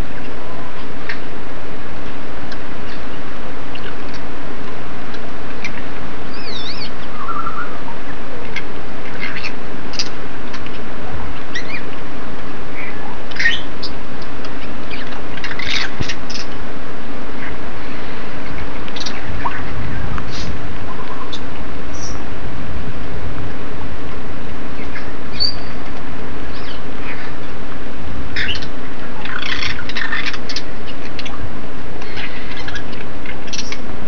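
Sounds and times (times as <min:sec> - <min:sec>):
parrots whistling and squawking: 0:05.6 - 0:10.8, 0:11.4 - 0:12.0, 0:12.7 - 0:14.0, 0:14.8 - 0:16.6, 0:17.4 - 0:22.2, 0:24.8 - 0:25.8, 0:26.5 - 0:27.6, 0:28.4 - 0:31.4, 0:32.0 - 0:33.8.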